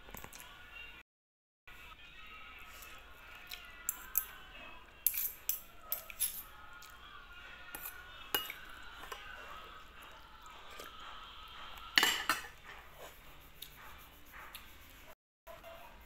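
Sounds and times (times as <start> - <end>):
cutlery clinking on ceramic plate: 5.0 - 6.5, 7.7 - 9.3, 12.0 - 12.7.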